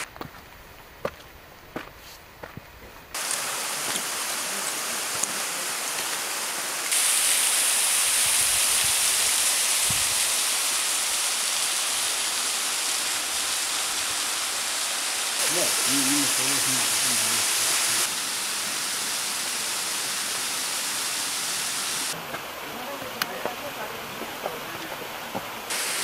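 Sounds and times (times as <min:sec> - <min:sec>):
waterfall rushing: 0:03.2 - 0:26.0.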